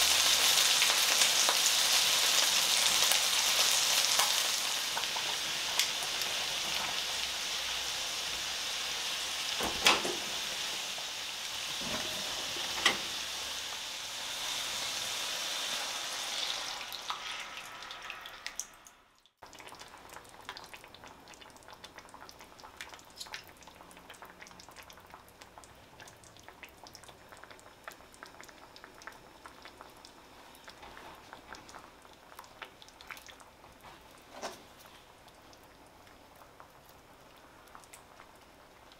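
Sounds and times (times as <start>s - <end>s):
chicken sizzling in a skillet: 0.0s - 20.7s
sauce simmering crackle and pop: 0.0s - 38.9s.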